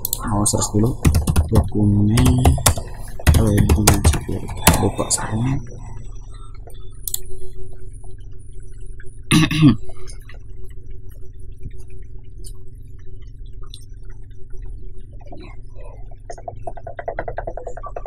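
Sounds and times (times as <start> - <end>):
low electrical hum: 0.0 - 18.0.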